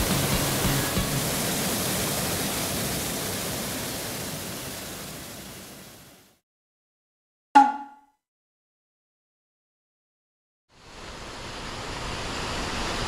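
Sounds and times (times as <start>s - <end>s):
stream rushing over stones: 0.0s - 6.1s.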